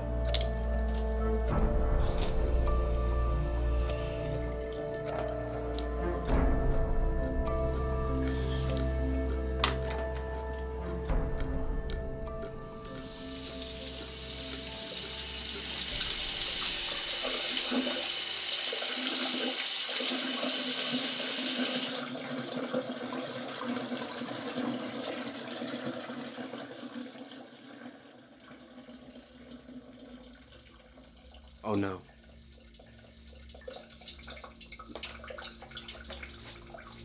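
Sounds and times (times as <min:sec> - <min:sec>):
tap water running into sink: 0:00.2 - 0:37.0.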